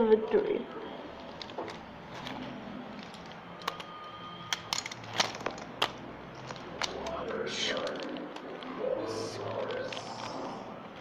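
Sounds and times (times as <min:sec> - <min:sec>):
toy trucks clicking on hard floor: 0:03.0 - 0:08.7.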